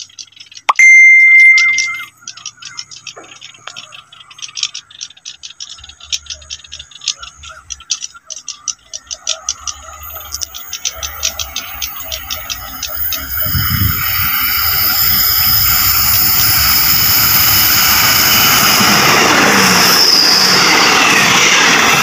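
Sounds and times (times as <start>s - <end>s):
faint warbling calls: 0.0s - 17.7s
high whistle-like tone: 0.7s - 2.1s, 12.0s - 21.0s
insects chirping in grass: 10.0s - 19.2s.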